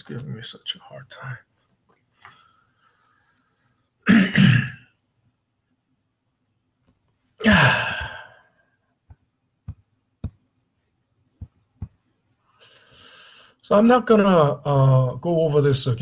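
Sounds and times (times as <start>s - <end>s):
man sighing: 7.4s - 8.5s
soft taps: 9.0s - 10.5s, 11.4s - 12.0s.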